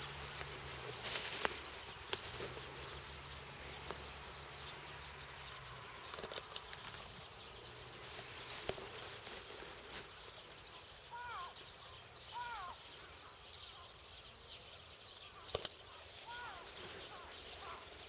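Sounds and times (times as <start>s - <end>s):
footsteps: 0.0s - 4.8s
dry grass rustling against clothing: 0.0s - 18.0s
small clicks: 6.0s - 7.1s, 15.4s - 15.8s.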